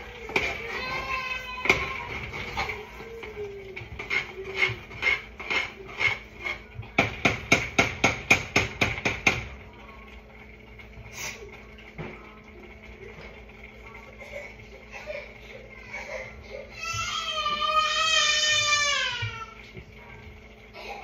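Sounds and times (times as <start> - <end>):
utensil clanking against pot: 0.0 - 14.1.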